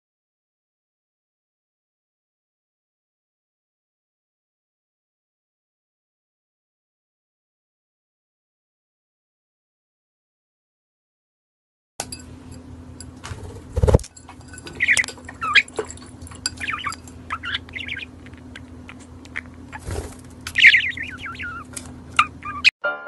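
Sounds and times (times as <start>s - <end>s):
steady low hum: 12.0s - 22.7s
bird chirping and warbling: 14.6s - 22.7s.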